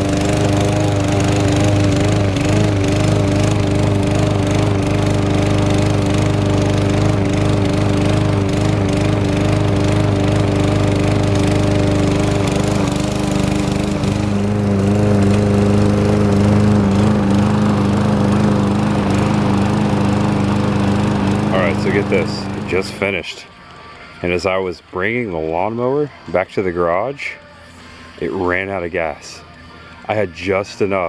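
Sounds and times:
push mower engine cutting grass: 0.0s - 23.4s.

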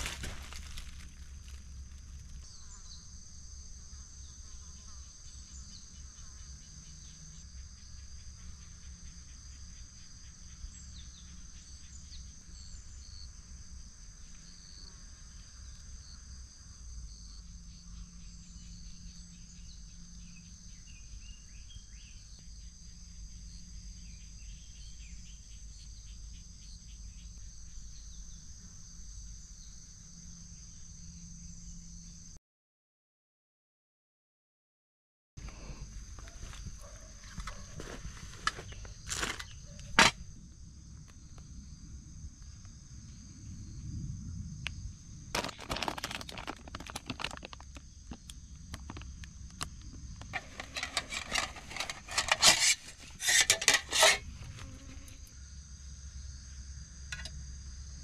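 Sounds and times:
short insect chirps: 0.0s - 13.4s
insects trilling: 0.0s - 32.4s, 35.4s - 58.0s.

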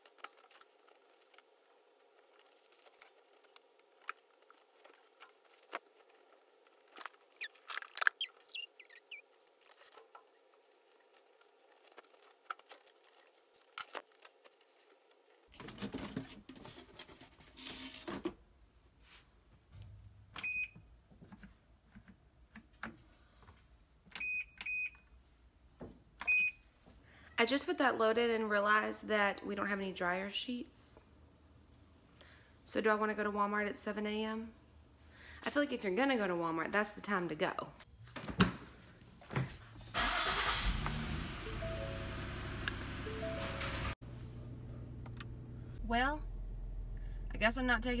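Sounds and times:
washing machine electronic beeps: 20.4s - 20.8s, 24.2s - 25.0s, 26.2s - 26.6s, 43.0s - 44.0s.

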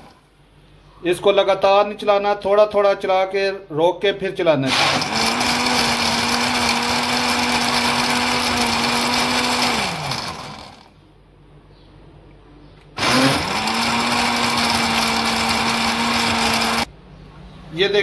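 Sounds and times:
electric blender motor: 0.0s - 0.2s, 4.7s - 10.9s, 13.0s - 16.9s.

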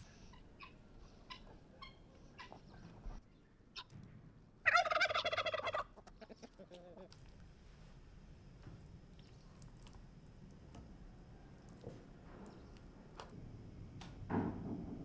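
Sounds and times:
turkey gobbling: 0.2s - 3.0s, 4.6s - 7.1s.

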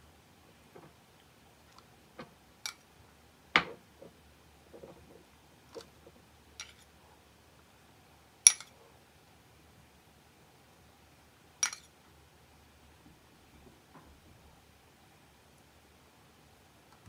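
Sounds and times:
metal spoon clinking on dish: 6.6s - 6.8s, 8.5s - 8.8s, 11.6s - 11.9s.

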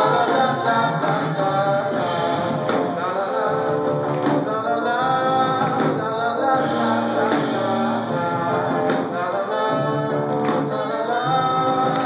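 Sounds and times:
drums: 0.0s - 12.0s
keyboard: 0.0s - 12.0s
electric bass: 3.5s - 12.0s.

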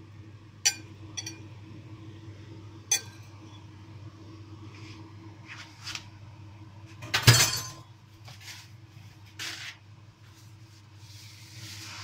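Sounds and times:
steady low hum: 0.0s - 12.0s
crockery clinking: 0.7s - 1.4s, 2.9s - 3.2s.

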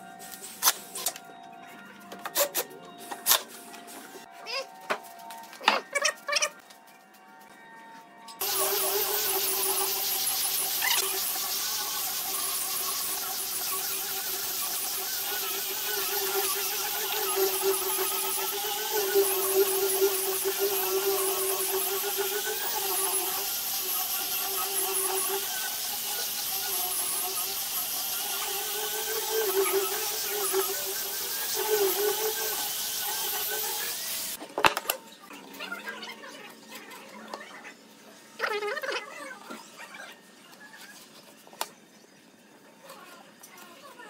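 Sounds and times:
angle grinder sanding wood: 8.4s - 34.4s.

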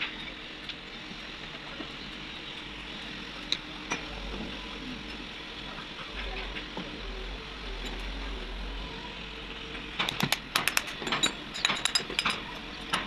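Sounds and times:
metallic clinks and taps: 10.8s - 12.4s.

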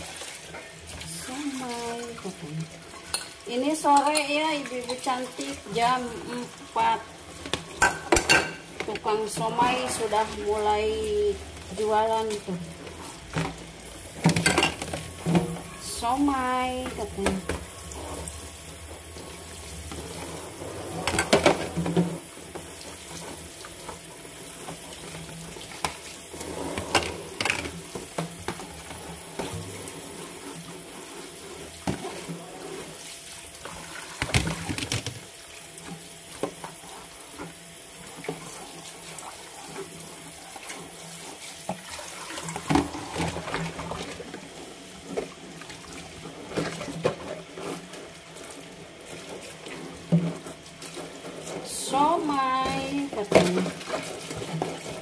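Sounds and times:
plastic knocking against sink: 34.2s - 35.3s.

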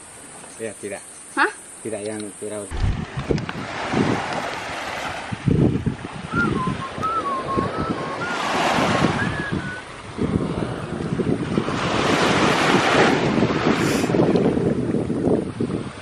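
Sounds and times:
small waves on gravel beach: 2.7s - 6.3s, 7.9s - 16.0s
wind buffeting microphone: 2.7s - 16.0s
thin wavering whistle: 6.2s - 9.9s.

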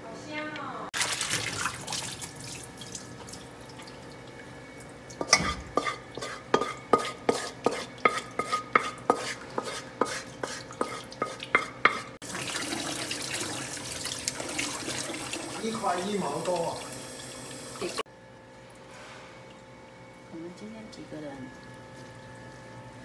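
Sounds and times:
water splashing into steel basin: 1.0s - 4.3s, 10.6s - 15.7s
metallic knocks against basin: 5.2s - 7.1s.

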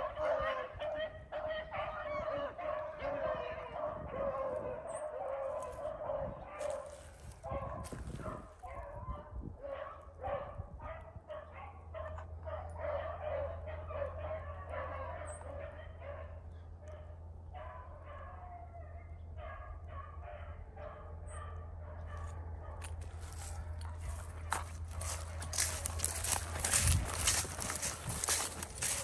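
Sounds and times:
dogs baying and barking: 0.0s - 29.0s
footsteps crunching dry leaves: 6.6s - 8.5s, 22.8s - 29.0s.

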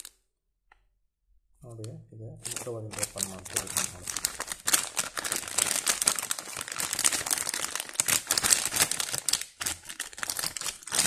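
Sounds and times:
plastic bag crinkling: 2.4s - 11.0s.

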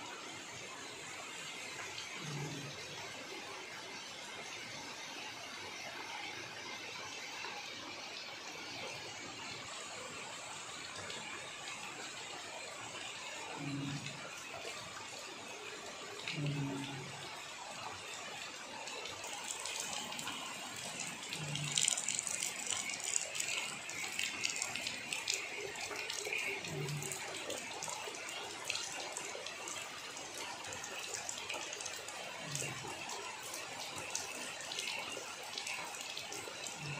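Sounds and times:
rain falling on leaves: 15.5s - 36.9s.

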